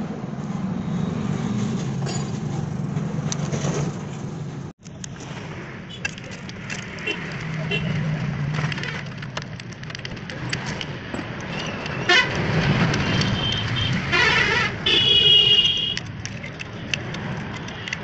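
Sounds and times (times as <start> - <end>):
low traffic rumble: 0.0 - 18.0
vehicle horns honking: 11.9 - 12.4, 13.0 - 16.0.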